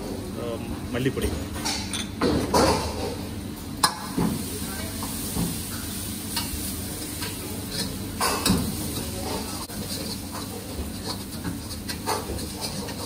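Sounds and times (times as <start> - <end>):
masala sizzling: 3.1 - 13.0
metal spatula scraping a wok: 9.8 - 13.0.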